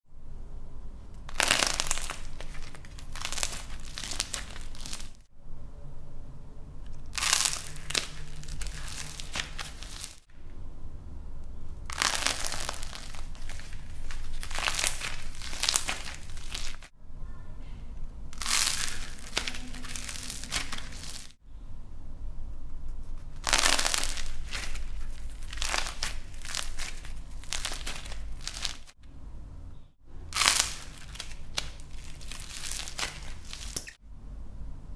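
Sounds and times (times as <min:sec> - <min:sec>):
crisp crackling of cracking shell: 0:01.2 - 0:05.3, 0:06.9 - 0:10.3, 0:11.6 - 0:16.9, 0:18.4 - 0:21.4, 0:23.2 - 0:29.0, 0:30.3 - 0:34.0.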